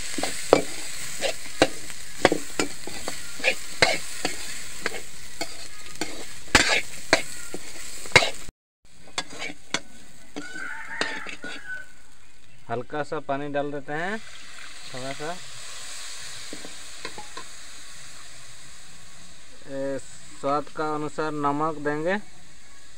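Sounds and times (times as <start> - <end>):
metal spoon scraping a pan: 0.0 - 12.0, 16.0 - 17.5
food sizzling in hot oil: 0.0 - 12.7, 13.3 - 22.9.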